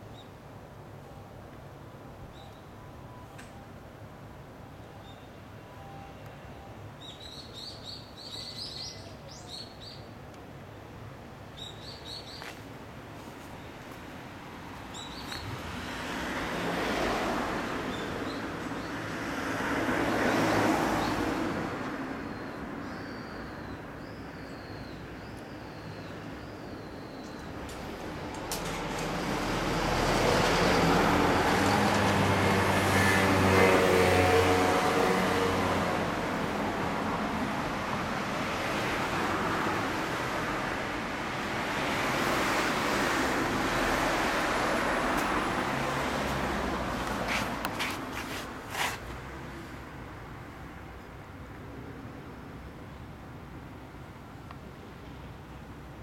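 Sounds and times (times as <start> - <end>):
small songbird chirping: 7.0 - 10.1, 11.6 - 12.6, 14.9 - 15.6.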